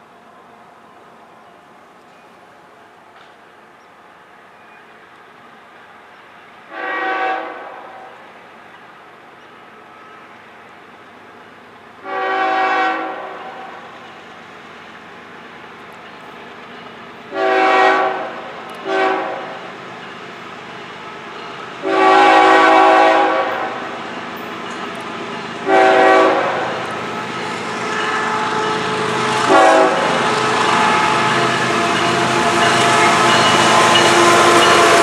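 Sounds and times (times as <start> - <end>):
train rumble: 0.0 - 35.0
locomotive air horn blasts: 6.7 - 8.2, 12.0 - 13.8, 17.3 - 19.6, 21.8 - 23.8, 25.6 - 35.0.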